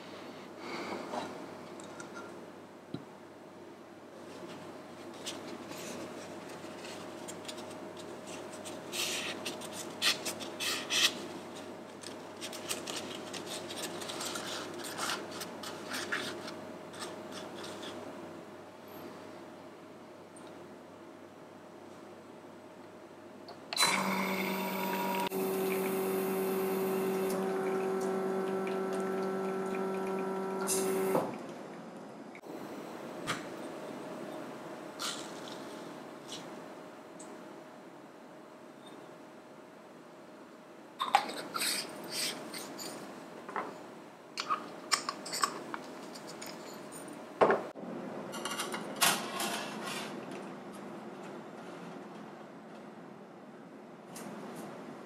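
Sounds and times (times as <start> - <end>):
espresso machine pump humming: 23.8 - 31.3.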